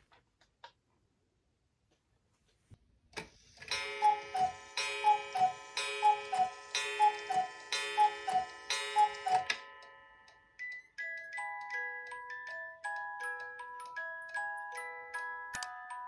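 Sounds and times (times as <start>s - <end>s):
cuckoo clock calls: 3.6s - 15.8s.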